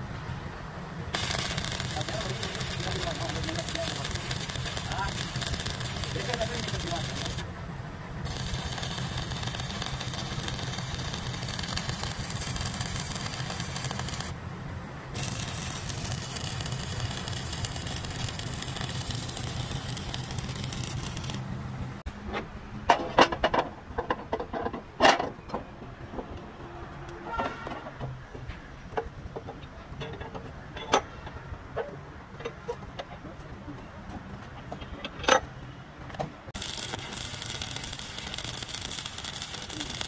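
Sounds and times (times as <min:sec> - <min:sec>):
engine running with hiss: 0:00.9 - 0:22.0, 0:36.6 - 0:40.0.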